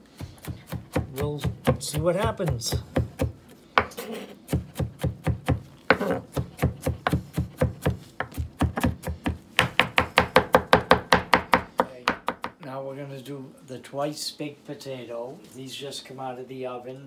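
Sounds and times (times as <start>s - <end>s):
knife chopping on cutting board: 0.1s - 12.5s.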